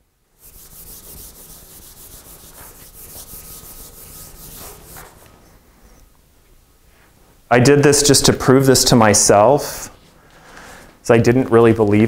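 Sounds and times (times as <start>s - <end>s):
eraser scrubbing a whiteboard: 0.4s - 6.0s.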